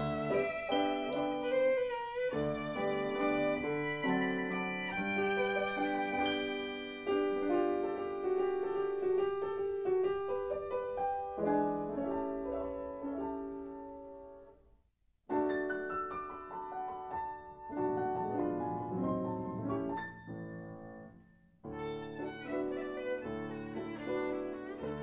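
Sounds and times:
piano melody: 0:00.0 - 0:14.5, 0:15.3 - 0:25.0.

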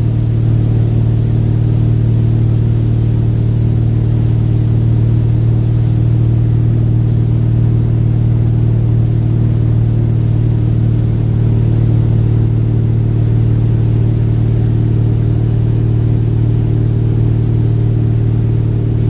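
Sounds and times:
boat engine droning: 0:00.0 - 0:19.0.

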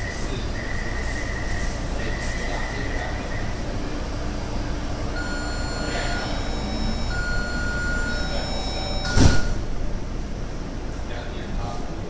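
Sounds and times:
train hum: 0:00.0 - 0:12.0
door warning beeps: 0:05.2 - 0:09.6.

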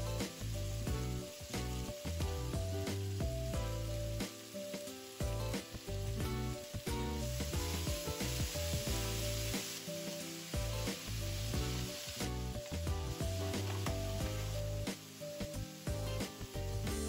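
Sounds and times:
potato strips sizzling in oil: 0:00.0 - 0:17.0
chopsticks stirring in pan: 0:02.8 - 0:17.0.

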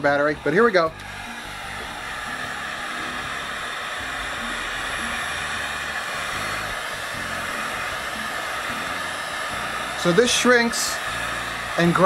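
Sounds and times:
heat gun blowing air: 0:00.0 - 0:12.0.

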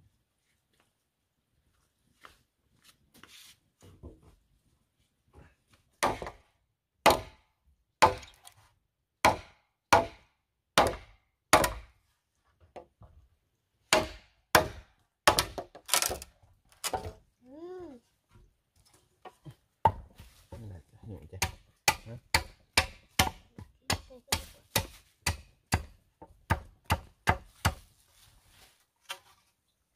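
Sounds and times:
machete chopping bamboo: 0:06.0 - 0:08.4, 0:09.2 - 0:12.0, 0:13.9 - 0:16.2, 0:21.4 - 0:27.9.

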